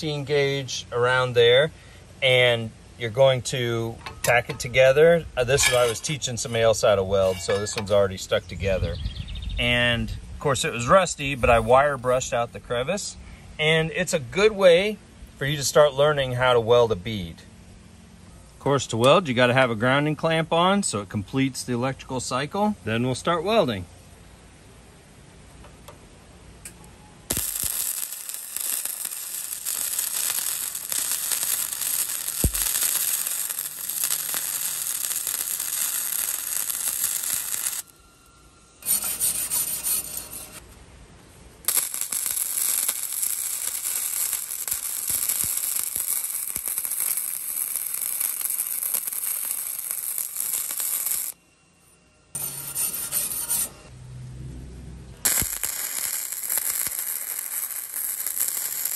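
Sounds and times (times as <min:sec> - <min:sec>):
welding arc crackling: 0:27.3 - 0:37.9, 0:38.8 - 0:40.6, 0:41.6 - 0:51.4, 0:55.2 - 0:58.9.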